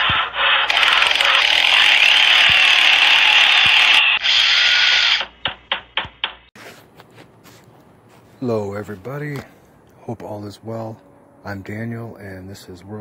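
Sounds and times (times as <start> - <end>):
power tool whirring: 0.0 - 5.4.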